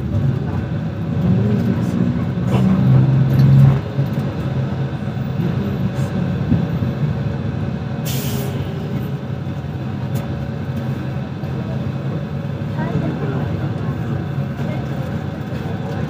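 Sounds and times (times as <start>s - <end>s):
bus engine running: 0.0s - 16.0s
air brakes hiss: 8.0s - 8.7s.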